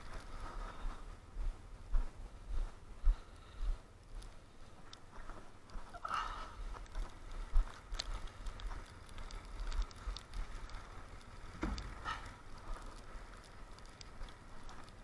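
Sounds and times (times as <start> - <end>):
footsteps crunching in snow: 0.0 - 3.6, 4.2 - 15.0
firewood logs knocking together: 11.5 - 12.4.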